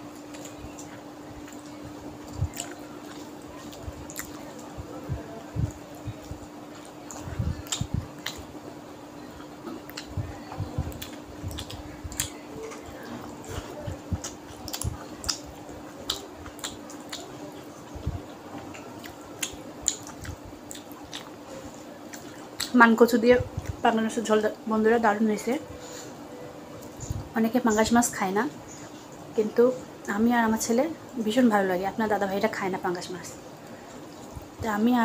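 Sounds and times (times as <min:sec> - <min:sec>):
steady low hum: 0:00.0 - 0:35.0
wet mouth chewing: 0:00.2 - 0:04.7, 0:05.5 - 0:08.5, 0:09.7 - 0:10.3, 0:10.9 - 0:21.4, 0:22.1 - 0:22.8.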